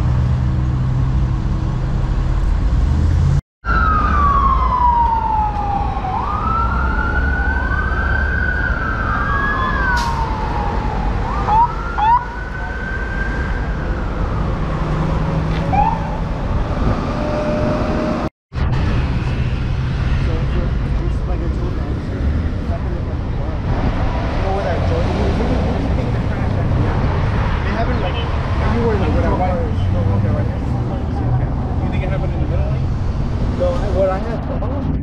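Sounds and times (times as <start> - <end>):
road traffic: 0.0 - 35.0
siren chirps: 3.6 - 14.8, 15.7 - 18.3
emergency siren wailing: 3.6 - 18.3.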